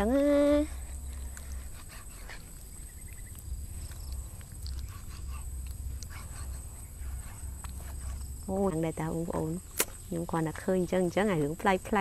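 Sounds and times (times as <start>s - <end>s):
low uneven rumble: 0.0s - 12.0s.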